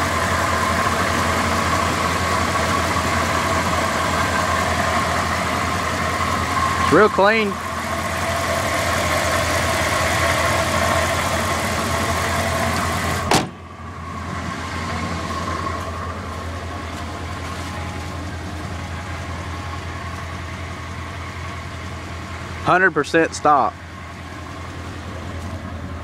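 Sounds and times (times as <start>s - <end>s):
car engine idling: 0.0s - 26.0s
hood shutting thump: 13.2s - 13.7s.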